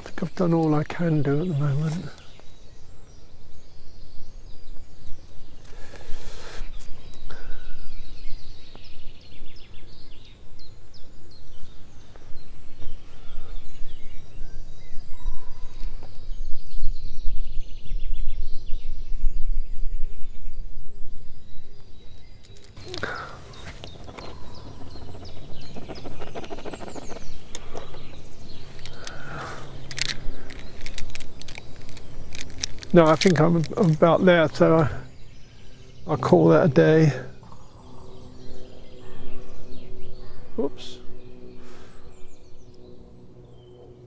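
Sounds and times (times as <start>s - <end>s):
small birds chirping: 0.0s - 44.0s
wind rumble on microphone: 6.8s - 36.0s.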